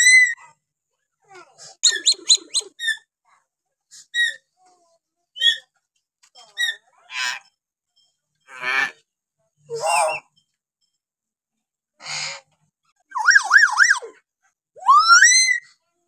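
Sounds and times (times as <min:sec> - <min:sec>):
harsh rasping bird call: 0:01.8 - 0:02.8
myna bird whistling calls: 0:01.8 - 0:02.9.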